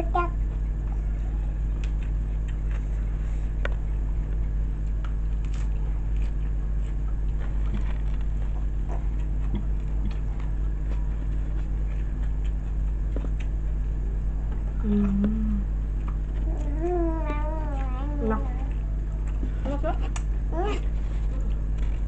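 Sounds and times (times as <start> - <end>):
steady low hum: 0.0 - 22.0
chewing: 0.5 - 22.0.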